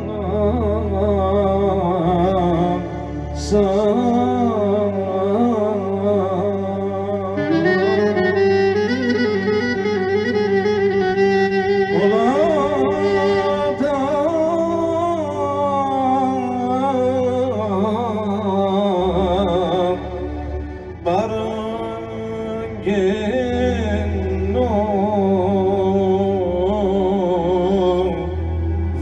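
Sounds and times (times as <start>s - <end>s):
electronic keyboard chords and bass: 0.0s - 29.0s
clarinet folk melody: 7.3s - 15.1s.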